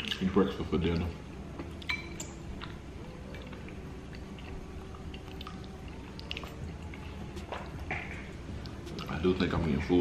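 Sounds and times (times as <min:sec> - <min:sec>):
man chewing food: 0:00.0 - 0:09.2
small mouth clicks: 0:03.4 - 0:07.0.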